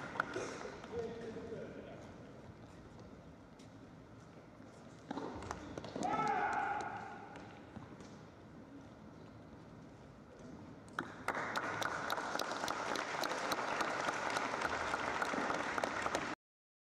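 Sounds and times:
spectator applause: 11.2s - 16.4s.

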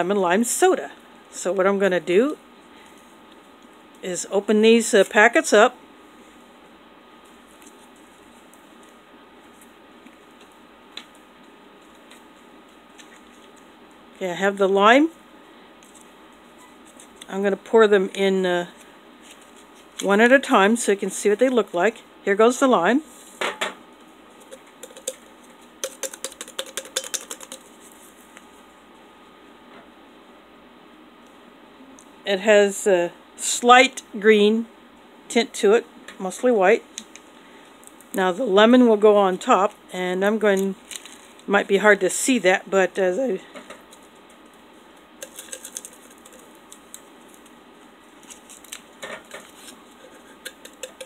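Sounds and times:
fingers tapping powder packet: 25.8s - 27.7s, 45.2s - 47.0s, 50.4s - 51.0s
paper packet crinkling: 40.6s - 41.5s, 45.2s - 51.0s.

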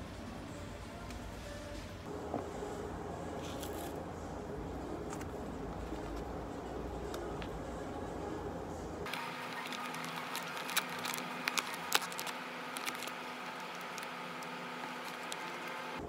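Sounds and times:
faint steady hum: 0.0s - 16.0s
plastic packaging crinkling: 9.1s - 16.0s.

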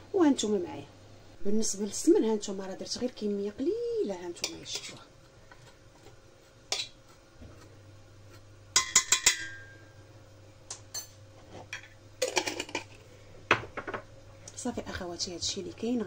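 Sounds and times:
metal spoon clinking in pot: 8.8s - 9.8s.

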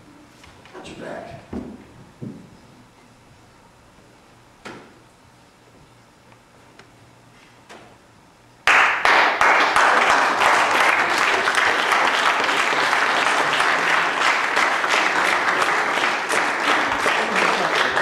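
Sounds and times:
audience applause: 8.6s - 18.0s.

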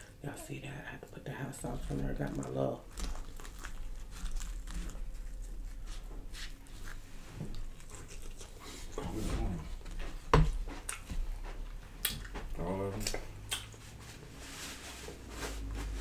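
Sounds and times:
chewing with mouth clicks: 2.2s - 5.8s, 6.7s - 12.4s, 13.0s - 13.9s.

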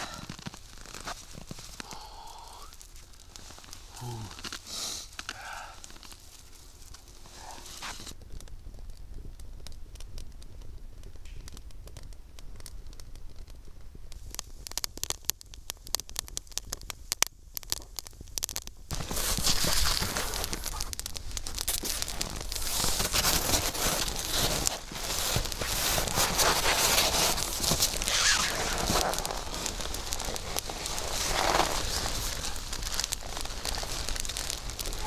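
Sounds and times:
rustling: 0.0s - 8.2s, 18.9s - 35.0s
campfire crackling and popping: 0.0s - 35.0s.

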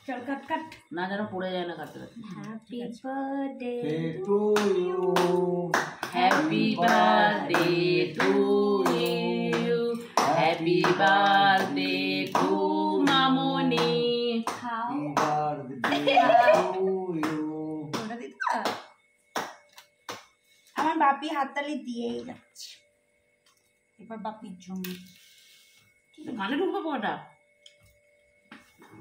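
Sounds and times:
family singing birthday song: 0.0s - 18.3s
hand claps: 4.6s - 21.0s.

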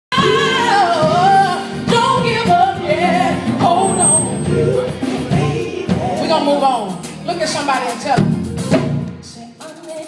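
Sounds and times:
women singing gospel together: 0.1s - 6.7s.

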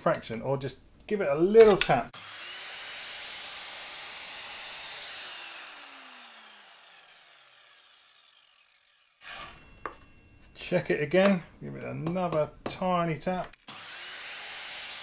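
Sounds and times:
mitre saw winding down: 2.2s - 9.8s, 13.7s - 15.0s.

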